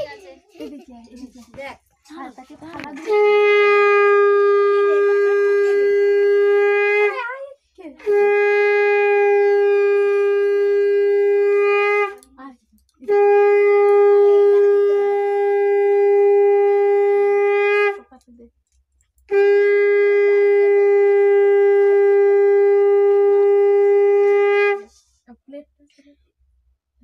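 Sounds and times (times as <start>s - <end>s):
conch shell blasts: 3.0s - 7.2s, 8.0s - 12.2s, 13.0s - 18.1s, 19.3s - 24.9s.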